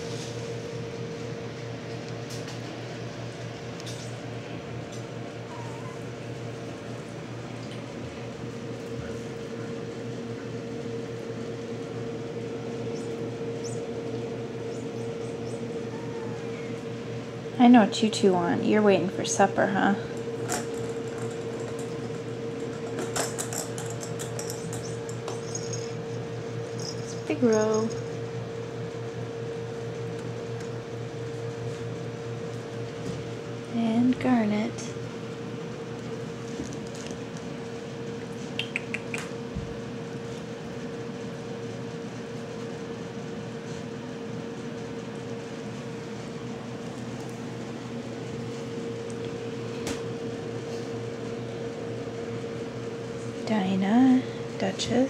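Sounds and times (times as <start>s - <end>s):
steady background hum: 0.0s - 55.0s
kittens clicking and scratching: 20.4s - 28.1s, 38.3s - 39.4s
metallic clinks against bowl: 23.3s - 26.0s, 26.8s - 28.1s.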